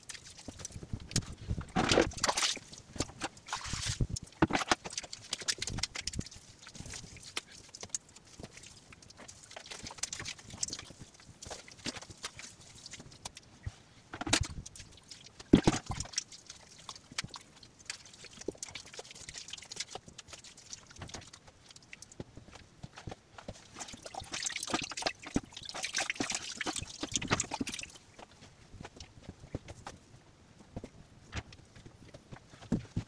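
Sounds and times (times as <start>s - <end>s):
wet mud squelching: 0.0s - 11.0s, 23.6s - 28.1s
rustling and scraping: 0.0s - 14.6s, 26.2s - 33.0s.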